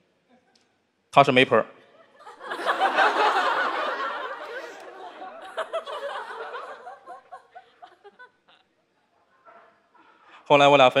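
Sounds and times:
studio audience laughing: 2.0s - 8.7s.

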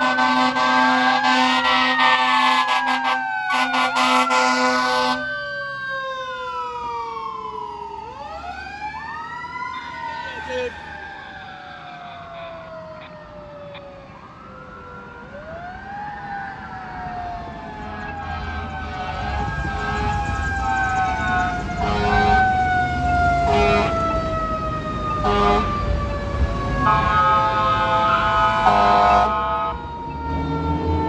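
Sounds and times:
air horn blasts: 0.0s - 5.2s, 21.1s - 22.6s, 23.4s - 24.0s, 25.2s - 25.8s, 26.8s - 29.8s
fire truck sirens wailing: 0.0s - 31.0s
truck engine rumble: 3.6s - 15.6s, 16.3s - 31.0s.

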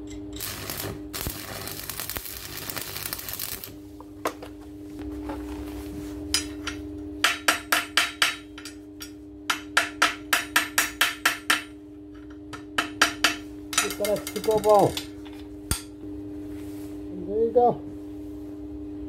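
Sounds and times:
steady hum: 0.0s - 19.0s
welding arc crackling: 0.3s - 3.8s
chipping hammer tapping metal: 12.6s - 15.1s.

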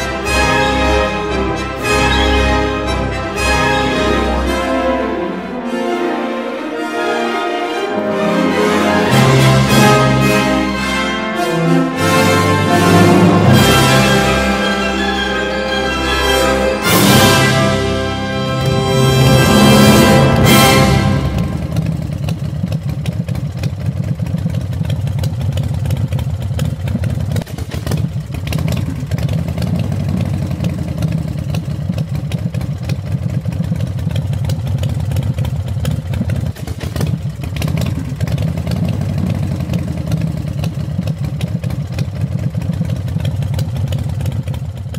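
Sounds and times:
motorbike engine idling: 20.3s - 44.9s.

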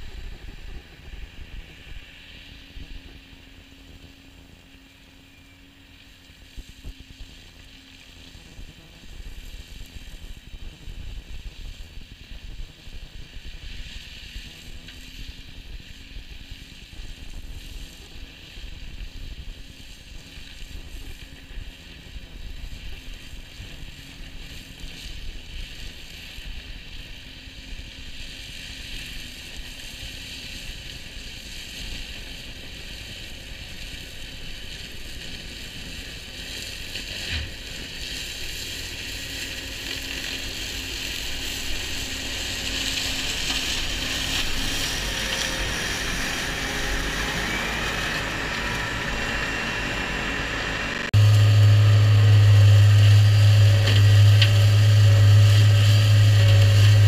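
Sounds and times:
loud steady low hum: 0.0s - 20.1s, 20.7s - 57.0s
flail cutter whirring through grass: 0.1s - 57.0s
tractor engine rumble: 31.4s - 57.0s.

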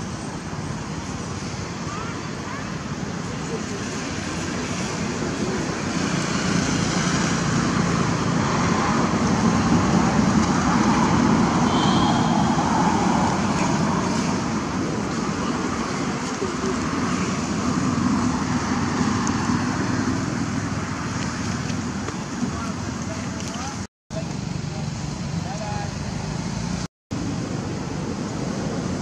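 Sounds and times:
faint high chirp: 11.7s - 12.7s.

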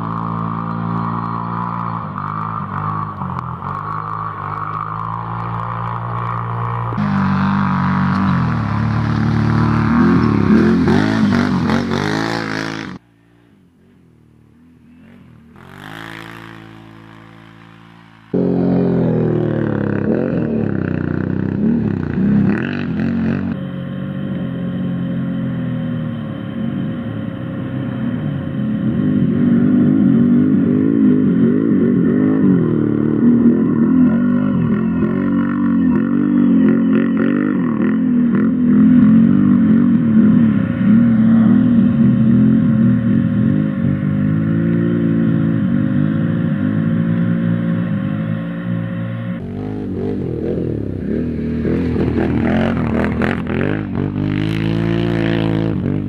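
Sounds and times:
quad engine revving: 0.0s - 13.0s, 14.4s - 56.0s.

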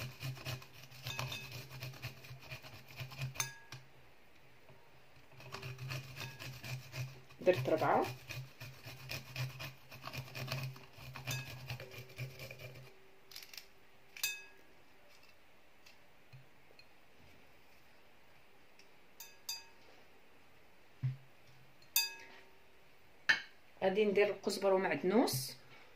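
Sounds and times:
garlic rasping on metal grater: 0.0s - 3.6s, 5.3s - 13.6s.

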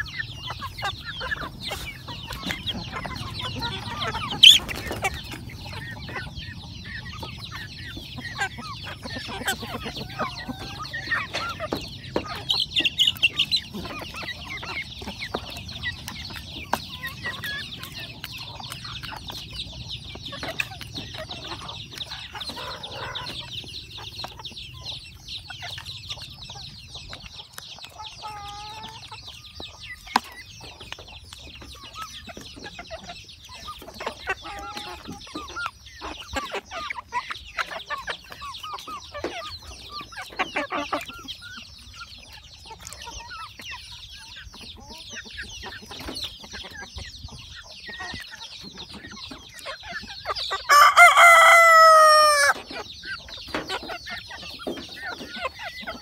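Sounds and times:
chickens clucking softly: 0.0s - 56.0s
rooster crowing: 50.7s - 52.6s.

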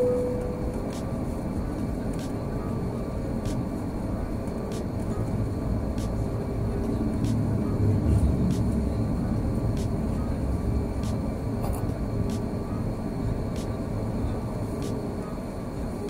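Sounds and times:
jet engine roar in cabin: 0.0s - 16.0s.

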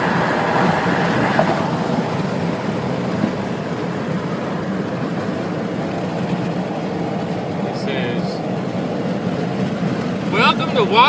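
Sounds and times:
road and tyre noise inside car: 0.0s - 11.0s.

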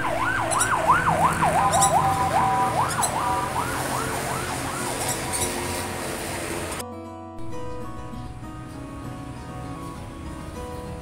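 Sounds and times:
emergency vehicle siren: 0.0s - 6.8s.

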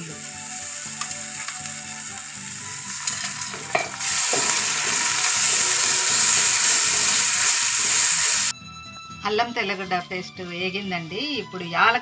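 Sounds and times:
food sizzling in hot oil: 0.0s - 8.5s
metal spatula scraping a pan: 2.9s - 7.3s.

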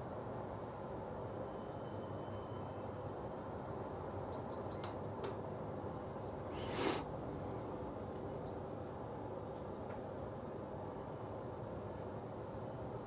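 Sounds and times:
faint high bird chirps: 0.0s - 3.3s, 4.2s - 5.0s, 8.2s - 8.8s
outdoor background hiss: 0.0s - 13.0s
loud hissing whoosh: 6.5s - 7.7s.

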